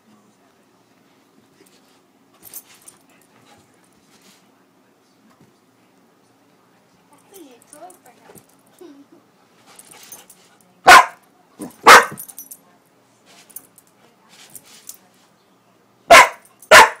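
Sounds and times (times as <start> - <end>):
dog barking loudly: 10.9 - 11.2, 11.8 - 12.2, 16.1 - 17.0.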